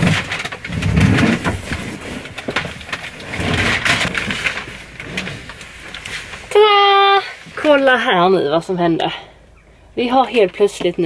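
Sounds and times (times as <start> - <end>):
sliding rustling noise: 0.0 - 6.6.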